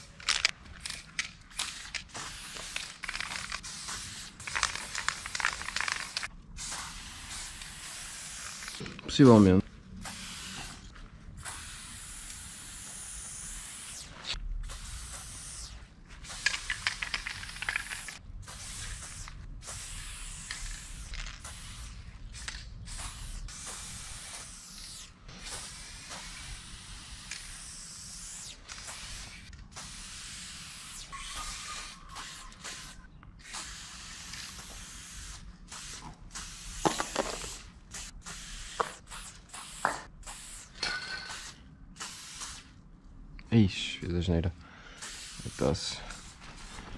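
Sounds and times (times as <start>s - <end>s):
spray paint can hissing: 0.0s - 9.0s, 10.0s - 42.8s, 45.0s - 46.9s
spray can mixing ball rattling: 0.0s - 9.2s, 16.2s - 24.8s, 31.5s - 40.5s.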